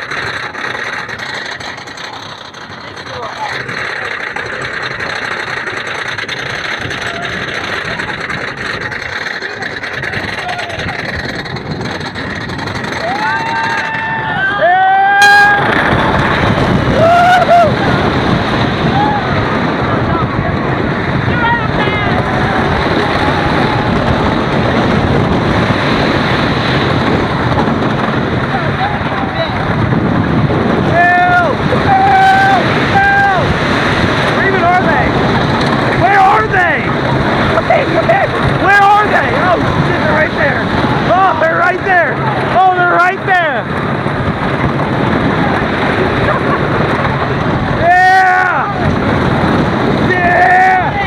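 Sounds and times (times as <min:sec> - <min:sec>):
lift chain clatter: 0:00.0 - 0:14.1
train rumbling on wooden track: 0:00.0 - 0:51.0
wind rushing over microphone: 0:00.0 - 0:51.0.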